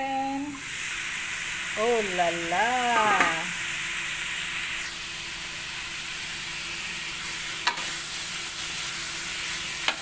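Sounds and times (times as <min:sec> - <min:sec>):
pork sizzling in a wok: 0:00.0 - 0:10.0.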